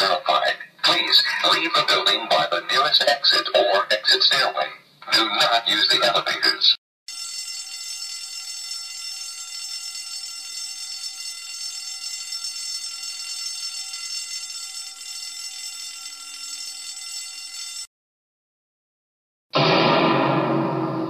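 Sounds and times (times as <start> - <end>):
fire alarm ringing: 7.1 - 17.9.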